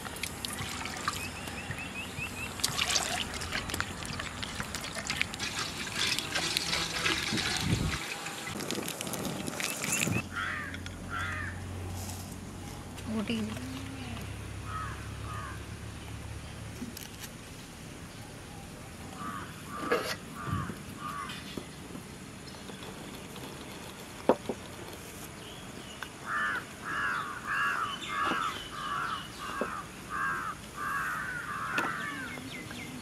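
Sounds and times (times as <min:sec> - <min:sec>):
crows cawing: 0:10.3 - 0:11.6, 0:14.6 - 0:15.6, 0:19.2 - 0:21.4, 0:26.2 - 0:32.4.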